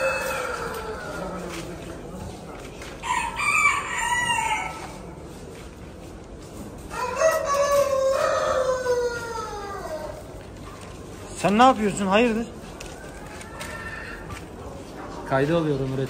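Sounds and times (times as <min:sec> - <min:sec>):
roosters crowing: 0:00.0 - 0:02.0, 0:02.9 - 0:05.3, 0:06.8 - 0:10.4, 0:11.8 - 0:14.8.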